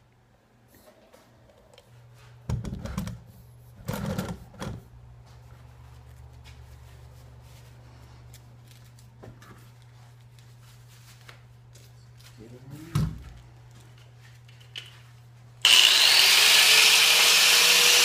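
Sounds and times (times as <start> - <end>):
work gloves rustling: 5.2 - 15.5.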